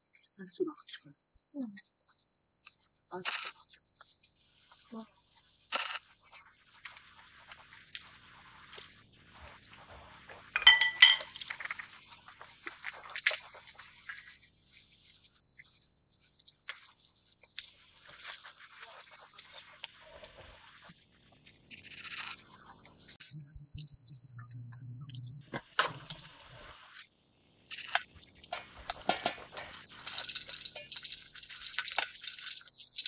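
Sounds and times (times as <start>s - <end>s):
spoons and dishes clinking: 10.6s - 11.8s, 28.5s - 33.0s.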